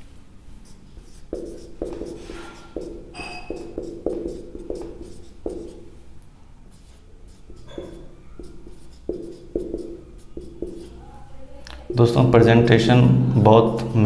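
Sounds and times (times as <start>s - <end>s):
pen strokes writing by hand: 0.6s - 5.8s, 6.7s - 11.0s.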